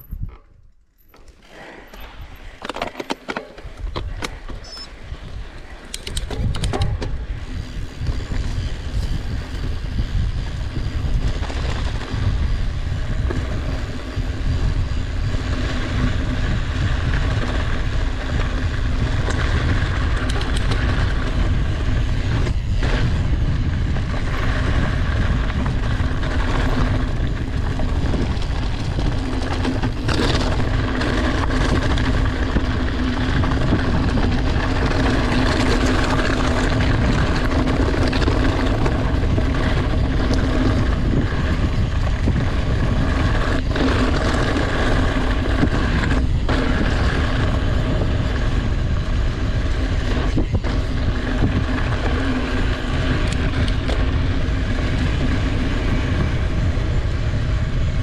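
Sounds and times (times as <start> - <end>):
scattered clicks: 0.0 - 7.2, 18.3 - 21.4, 53.0 - 54.2
bike tyres rumbling on gravel: 0.0 - 58.0
wind noise: 0.0 - 58.0.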